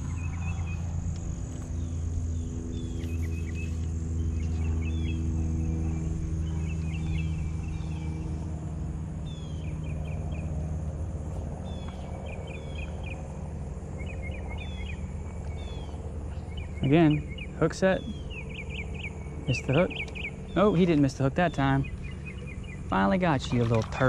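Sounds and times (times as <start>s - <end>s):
bird chirping: 0.0s - 8.5s, 9.2s - 10.8s, 11.6s - 24.0s
insects buzzing: 0.0s - 24.0s
low mechanical hum: 0.0s - 24.0s.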